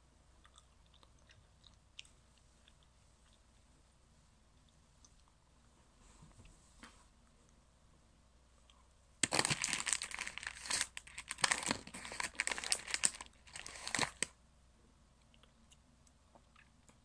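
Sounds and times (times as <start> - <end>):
crinkly packaging rustling: 9.2 - 14.3.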